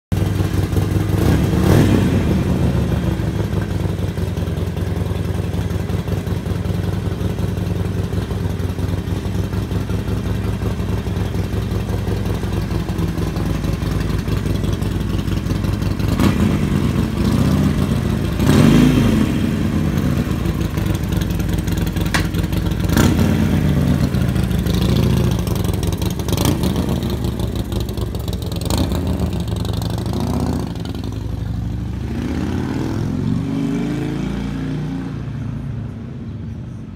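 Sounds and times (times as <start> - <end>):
motorcycle engine idling: 0.2 - 32.1
motorcycle pulling away: 0.2 - 35.3
motorcycle throttle blips: 9.8 - 28.0.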